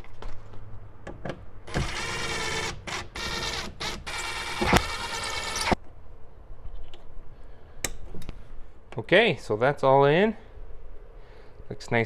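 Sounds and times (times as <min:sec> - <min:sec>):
cordless driver driving screws: 0:01.7 - 0:05.8.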